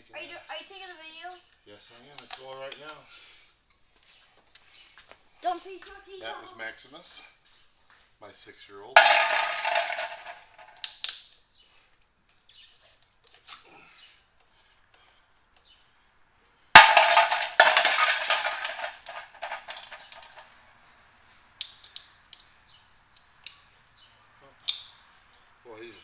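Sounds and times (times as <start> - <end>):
metal cover clattering on concrete: 9.0 - 10.7, 16.8 - 20.4.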